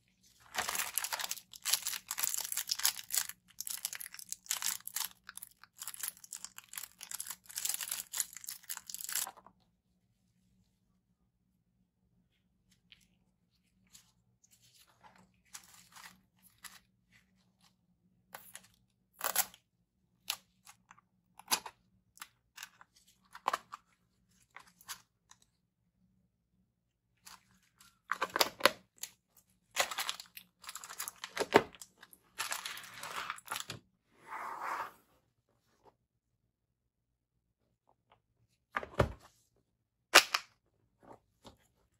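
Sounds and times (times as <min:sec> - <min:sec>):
packaging clicks and rustles: 0:00.4 - 0:09.3.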